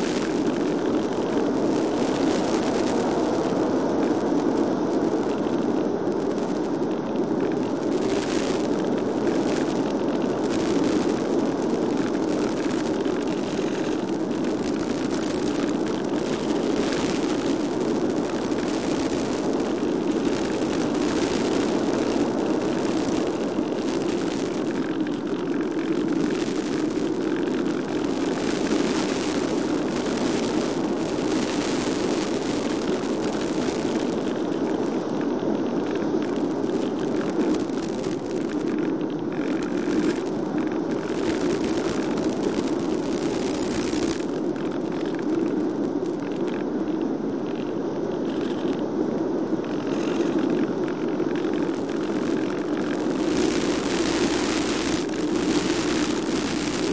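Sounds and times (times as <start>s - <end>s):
rushing wind on microphone: 0.0s - 56.9s
brief crackles: 35.8s - 48.9s, 49.6s - 56.9s.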